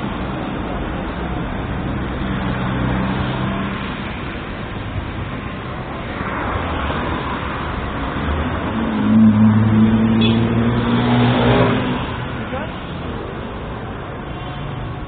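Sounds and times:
street traffic noise: 0.0s - 15.0s
vehicle engine hum passing: 0.0s - 15.0s.

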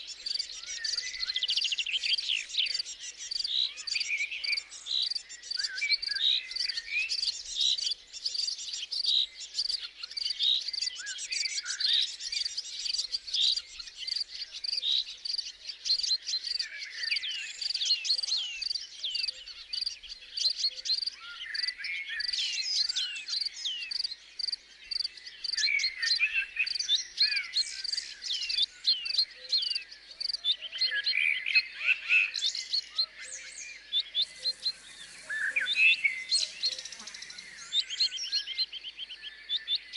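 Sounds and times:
small birds chirping: 0.0s - 39.9s
crickets chirping: 34.2s - 38.1s.

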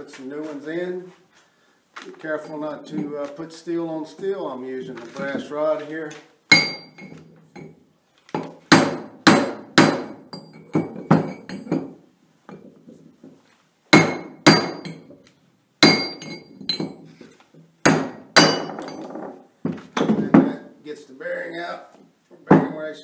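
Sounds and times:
hammer striking metal rod: 6.5s - 7.7s, 8.7s - 11.9s, 14.0s - 15.1s, 15.8s - 17.0s, 17.9s - 19.2s.

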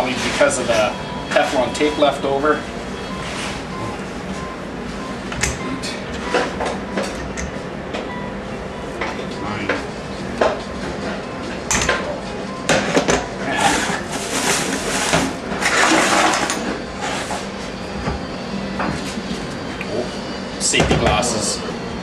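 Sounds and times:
metallic scraping and rattling: 13.6s - 17.5s.

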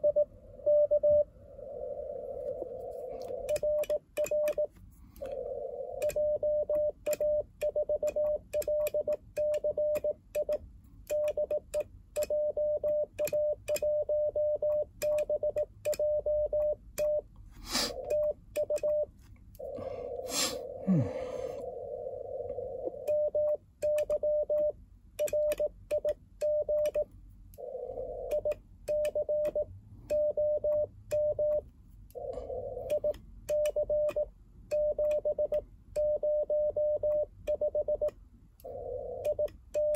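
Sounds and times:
morse code tone: 0.0s - 1.3s.

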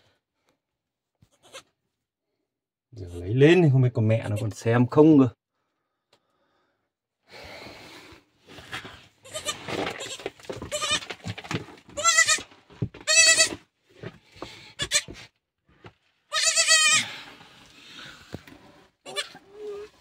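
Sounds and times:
goat kid bleating: 1.3s - 1.8s, 9.2s - 11.1s, 12.0s - 13.6s, 14.8s - 15.2s, 16.3s - 17.1s, 19.0s - 19.8s
rustling and scuffing: 8.4s - 16.1s.

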